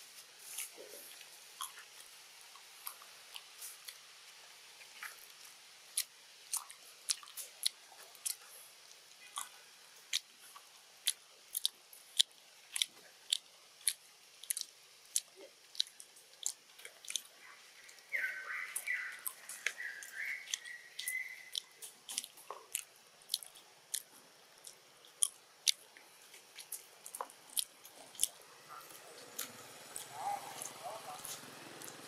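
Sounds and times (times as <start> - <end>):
monkey chewing with crunching clicks: 0.4 - 4.0, 4.8 - 32.0.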